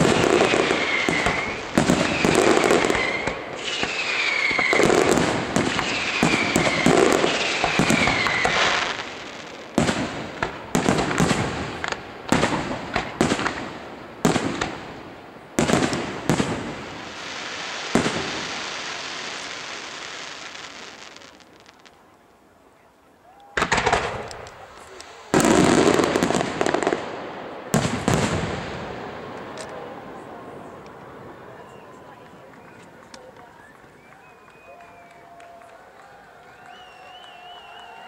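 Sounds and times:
firework whistles: 0:00.0 - 0:10.0, 0:16.3 - 0:21.9, 0:31.4 - 0:35.4, 0:36.4 - 0:38.0
firework bursts: 0:00.0 - 0:22.2, 0:23.4 - 0:35.2
firework crackling: 0:00.0 - 0:22.4, 0:23.4 - 0:38.0.

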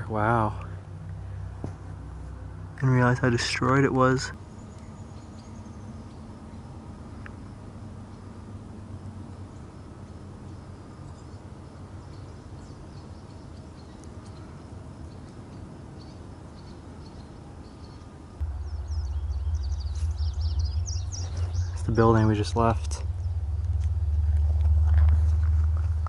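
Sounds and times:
birds chirping: 0:00.0 - 0:24.4
low rumble: 0:18.4 - 0:26.0.

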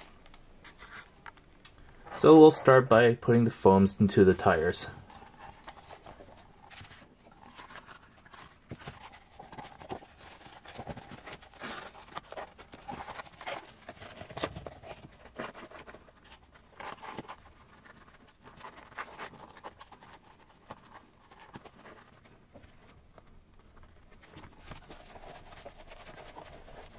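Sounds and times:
rubber and foam rubbing: 0:05.0 - 0:26.9.

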